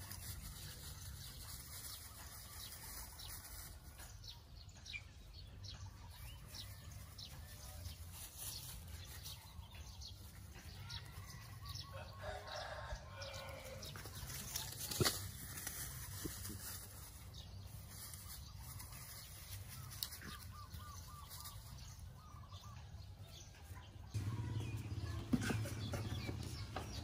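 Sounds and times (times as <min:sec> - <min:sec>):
dry straw crackling and rustling: 0:00.0 - 0:04.3, 0:06.1 - 0:22.6.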